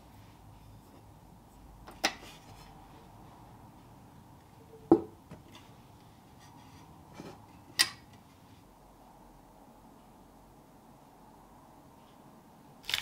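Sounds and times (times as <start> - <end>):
dull knock on wooden counter: 4.9 - 5.4.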